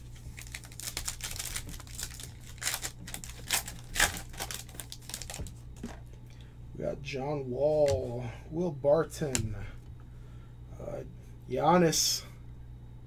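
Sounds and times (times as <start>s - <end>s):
plastic wrapper crinkling and tearing: 0.1s - 6.0s.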